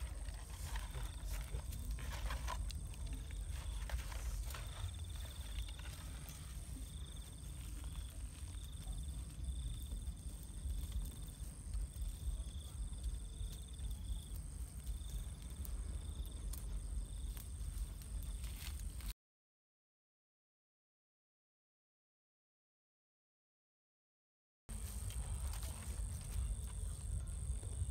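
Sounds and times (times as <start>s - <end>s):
crickets trilling: 0.0s - 19.1s, 24.7s - 27.9s.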